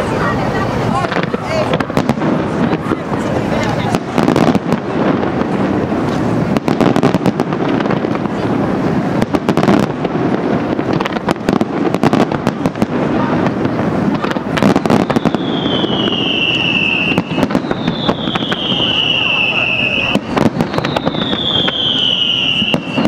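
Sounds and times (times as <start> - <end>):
fireworks crackling and bursting: 0.0 - 23.0
descending firework whistle: 14.5 - 23.0.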